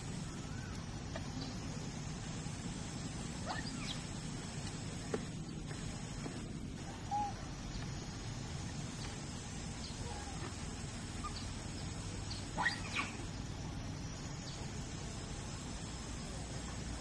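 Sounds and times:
low background rumble: 0.0 - 17.0
high sweeping animal calls: 3.4 - 4.2, 6.8 - 7.7, 9.8 - 13.5.

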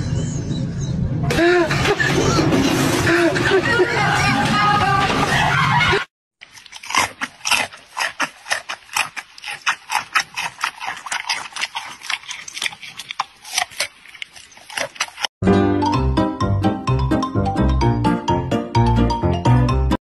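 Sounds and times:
panda crunching a carrot: 6.4 - 15.3.

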